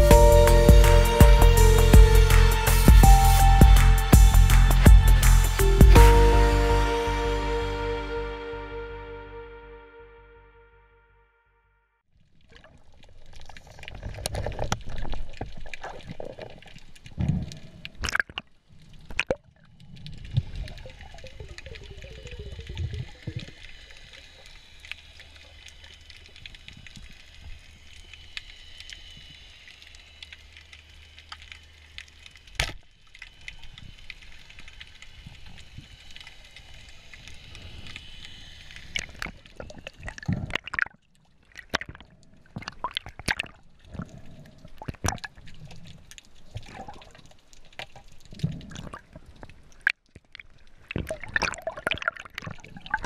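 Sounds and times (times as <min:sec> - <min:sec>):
faint high whine: 0:33.2 - 0:40.1
underwater watery hiss: 0:33.4 - 0:40.1.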